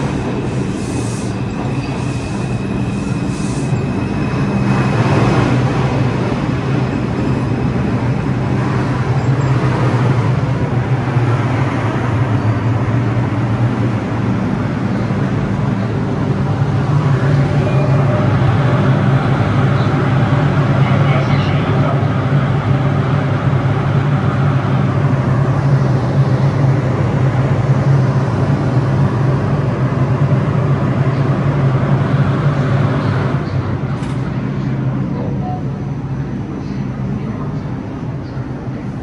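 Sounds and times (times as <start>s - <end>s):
subway train rumbling and braking: 0.0s - 39.0s
high wheel squeal: 0.5s - 4.8s.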